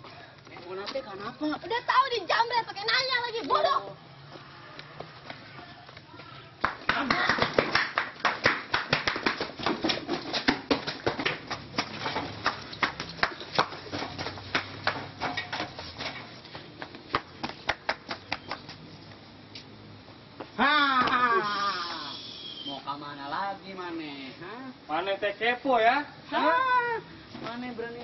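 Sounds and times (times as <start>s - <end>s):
footsteps running on hard path: 6.7s - 18.8s.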